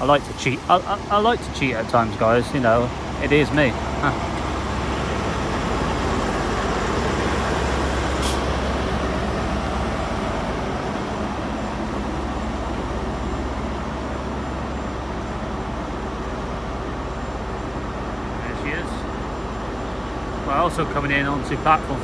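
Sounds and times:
diesel train engines rumbling: 0.0 - 22.0
short high air hiss: 8.2 - 8.5.

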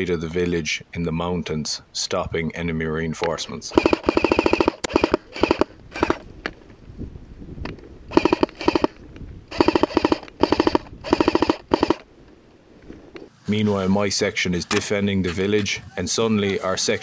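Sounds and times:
airsoft rifle full auto bursts: 3.7 - 6.2, 8.1 - 12.0.

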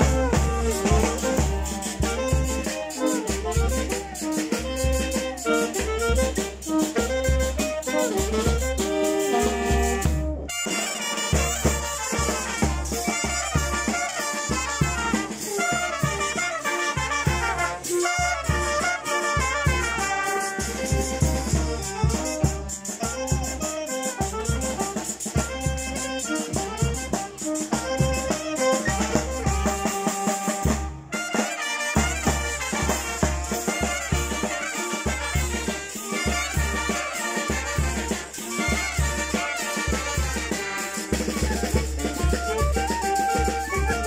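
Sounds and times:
saxophones: 0.0 - 44.0
steady drum beat: 0.0 - 44.0
trumpets: 0.0 - 44.0.

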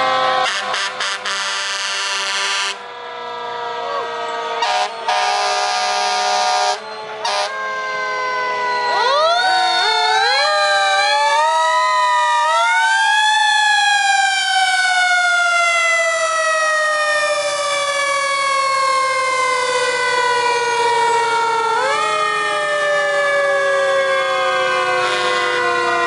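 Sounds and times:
fire engine sirens wailing: 0.0 - 26.0.

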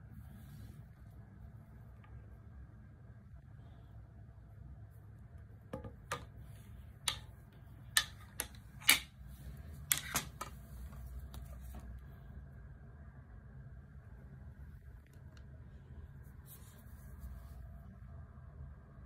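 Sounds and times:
faint low room hum: 0.0 - 19.0
golf clubs clicking together: 7.0 - 7.3, 7.9 - 9.2, 9.8 - 10.6.

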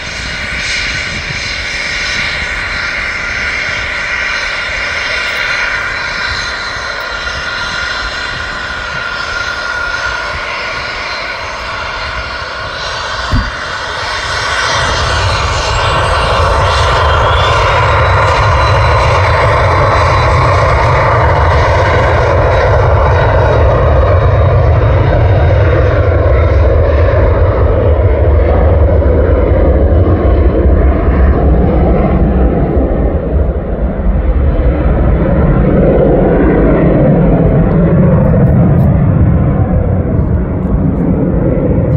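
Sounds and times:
jet engine whine: 0.0 - 41.9
loud low jet roar: 0.0 - 41.9
knock: 13.3 - 13.6.

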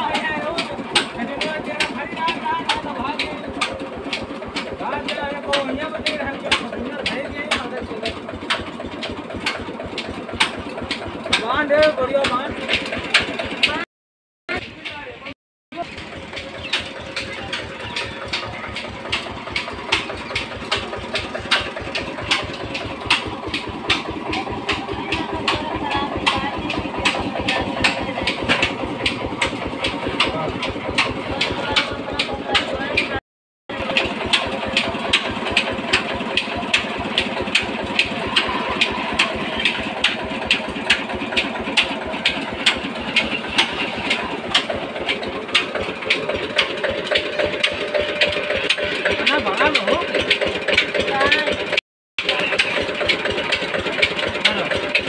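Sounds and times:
flour mill engine thudding: 0.0 - 13.8, 14.5 - 55.0
sharp repeating clack: 16.6 - 33.2.

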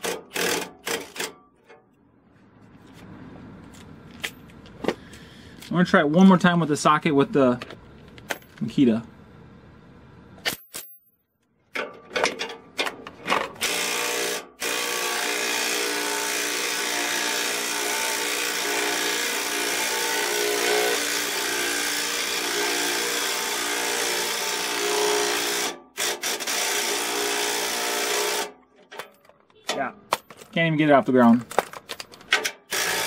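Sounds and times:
impact wrench hammering: 0.0 - 1.8.

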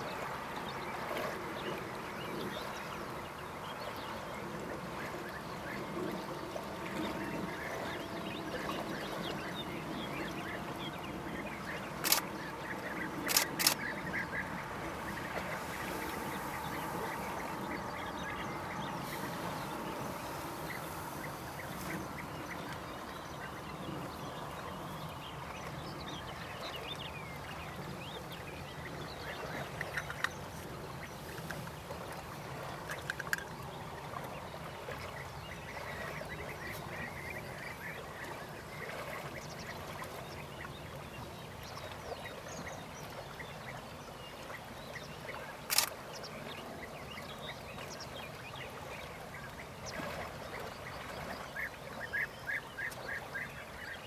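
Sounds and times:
background bird chatter: 0.0 - 54.0
bee-eaters calling: 9.3 - 23.7.

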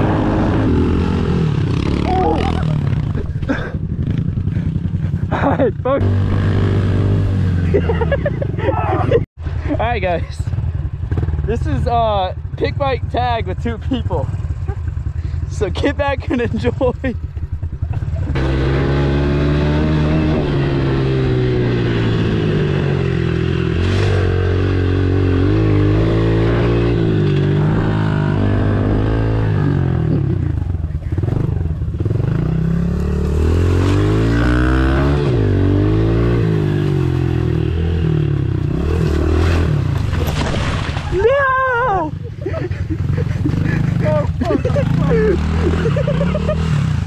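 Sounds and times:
small motorbike engine revving: 17.9 - 40.1
motorbike crashing into grass: 39.1 - 41.3.

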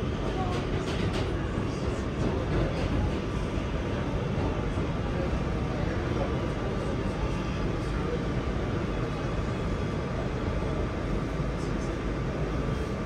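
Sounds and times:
subway car rumble and hum: 0.0 - 13.0.

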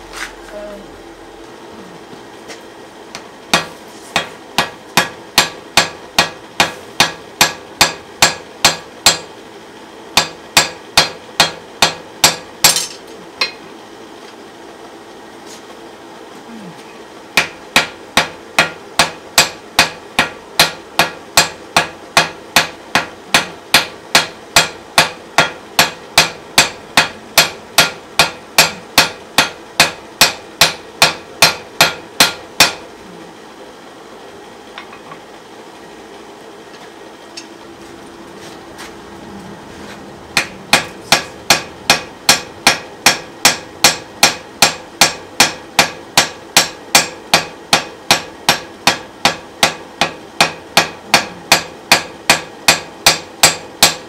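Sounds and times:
hammer striking hot iron on anvil: 3.1 - 9.3, 10.1 - 13.6, 17.3 - 32.9, 40.3 - 54.0.

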